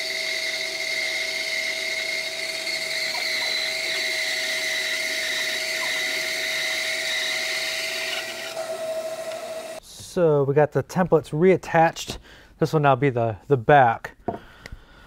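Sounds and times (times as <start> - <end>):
bandsaw cutting wood: 0.0 - 9.8.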